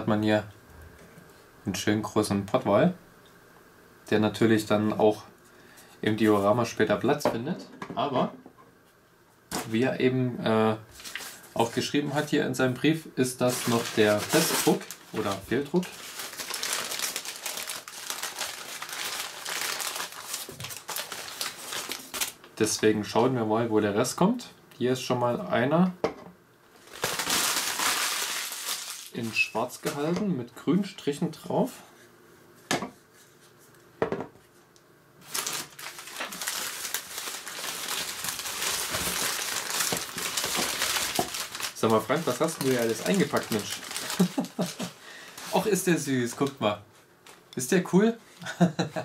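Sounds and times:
paper crinkling and rustling: 0:10.9 - 0:12.2, 0:13.4 - 0:22.5, 0:26.8 - 0:30.1, 0:35.2 - 0:47.4.

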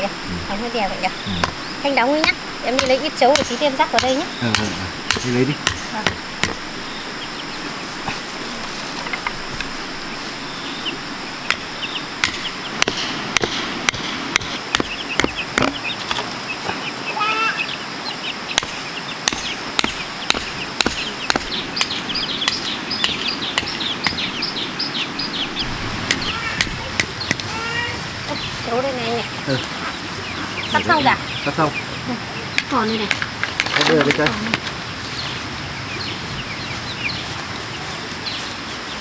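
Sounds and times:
chicks peeping: 0:00.0 - 0:39.0
hammer knocking nails into wood: 0:02.2 - 0:06.6, 0:12.2 - 0:15.8, 0:18.6 - 0:24.2.

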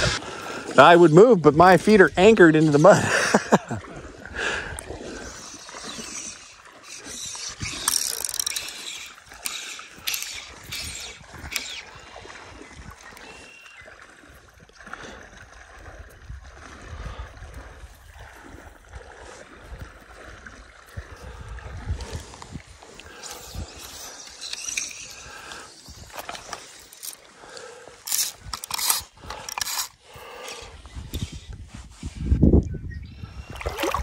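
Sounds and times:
fly reel drag ratcheting: 0:05.1 - 0:12.1, 0:22.0 - 0:31.3.

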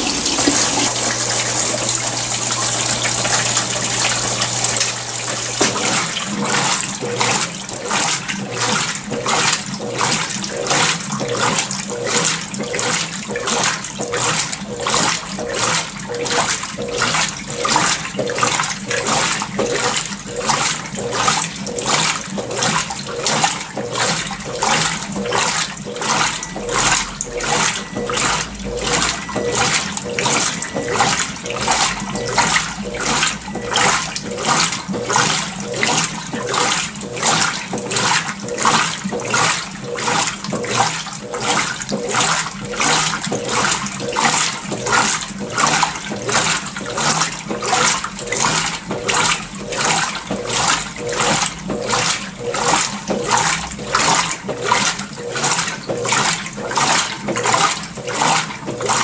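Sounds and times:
washing machine sloshing water: 0:00.0 - 0:59.0.

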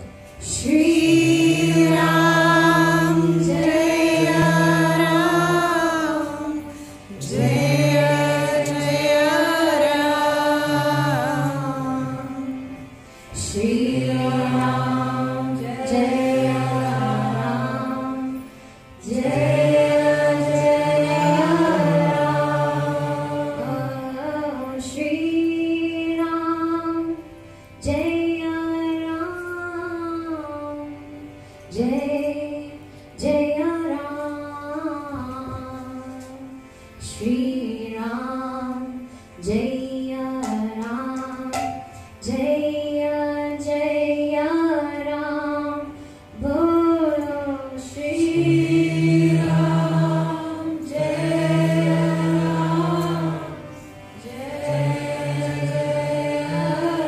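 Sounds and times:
instrumental accompaniment: 0:00.0 - 0:57.0
voices chanting a mantra: 0:00.6 - 0:12.8, 0:13.4 - 0:26.4, 0:46.5 - 0:57.0.

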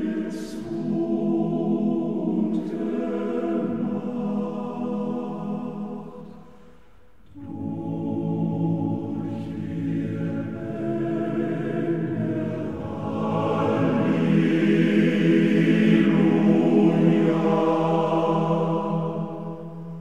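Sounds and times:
choir singing held chords: 0:00.0 - 0:20.0.

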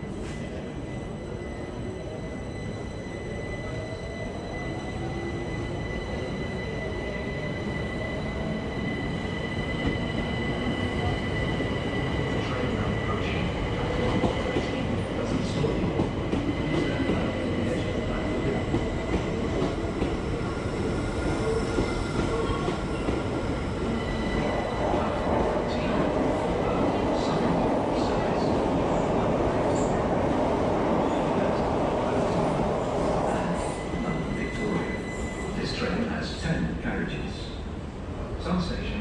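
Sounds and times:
high wheel squeal: 0:33.6 - 0:35.9.

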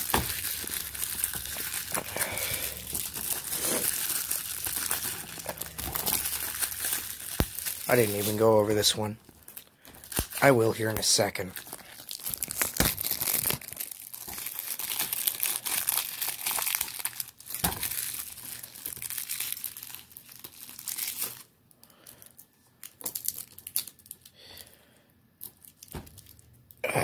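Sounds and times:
shrink-wrap crinkling and tearing: 0:00.0 - 0:24.3, 0:25.4 - 0:26.8.

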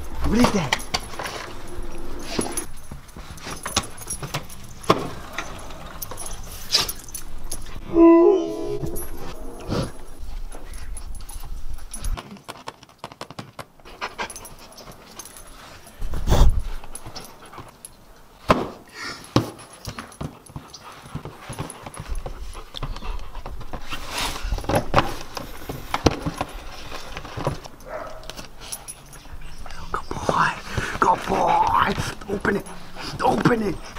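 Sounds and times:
dog panting: 0:13.8 - 0:17.8, 0:30.6 - 0:33.9.

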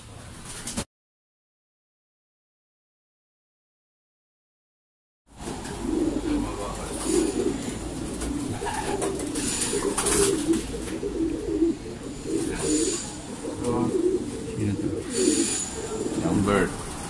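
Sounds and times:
pigeons cooing: 0:05.4 - 0:17.0.

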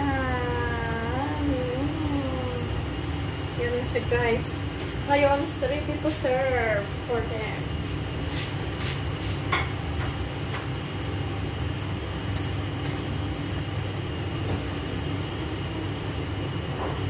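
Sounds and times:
exhaust fan humming: 0:00.0 - 0:17.0.

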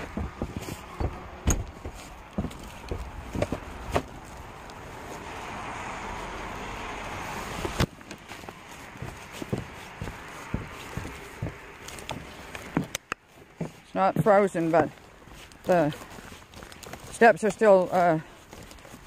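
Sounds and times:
car passing: 0:00.0 - 0:13.8
footsteps: 0:00.0 - 0:19.0.

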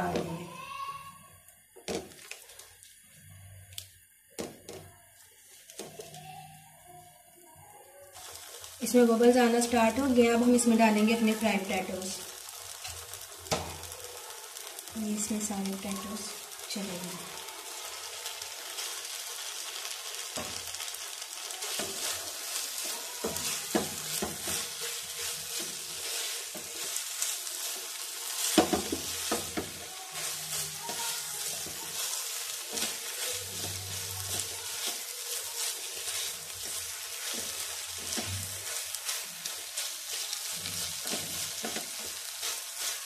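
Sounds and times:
sauce sizzling and bubbling: 0:05.1 - 0:43.0
spatula scraping pan: 0:17.8 - 0:43.0.

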